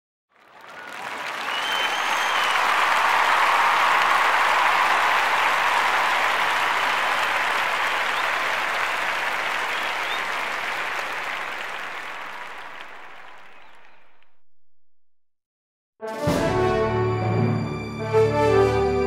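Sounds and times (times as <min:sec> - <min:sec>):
crowd applause: 0:00.3 - 0:14.3.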